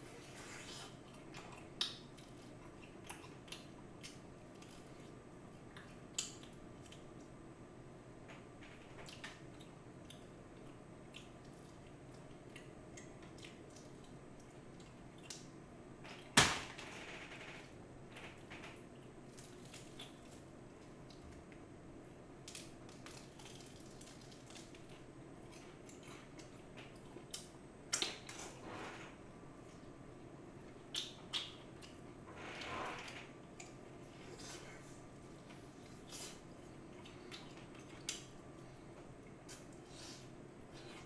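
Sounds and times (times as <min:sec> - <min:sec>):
steady low hum: 0:00.0 - 0:41.0
chewing crunches and clicks: 0:00.8 - 0:07.4, 0:08.9 - 0:15.5, 0:18.3 - 0:28.5, 0:35.4 - 0:40.2.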